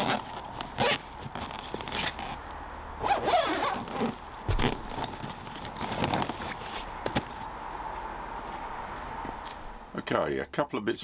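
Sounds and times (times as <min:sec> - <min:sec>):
zip being pulled closed: 0:00.0 - 0:02.4, 0:03.0 - 0:06.9.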